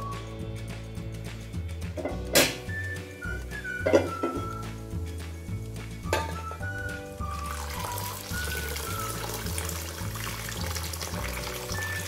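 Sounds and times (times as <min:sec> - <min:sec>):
background music: 0:00.0 - 0:12.0
water pouring into steel bowl: 0:07.2 - 0:12.0.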